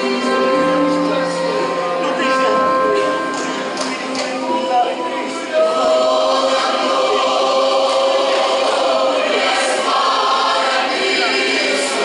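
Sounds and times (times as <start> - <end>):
choir singing a hymn: 4.7 - 12.0.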